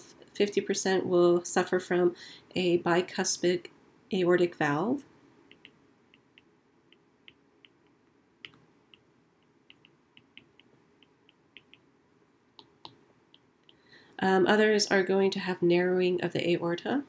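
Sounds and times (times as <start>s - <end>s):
low steady hiss: 0.0s - 17.0s
stylus ticking on glass screen: 5.5s - 11.9s.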